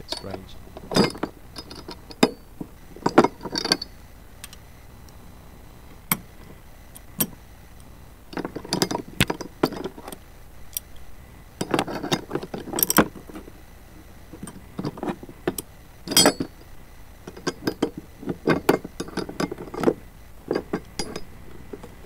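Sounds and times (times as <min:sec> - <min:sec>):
metal tools clinking and rattling: 0:00.0 - 0:04.6, 0:08.3 - 0:10.9, 0:11.6 - 0:13.5, 0:14.4 - 0:16.7, 0:17.3 - 0:22.0.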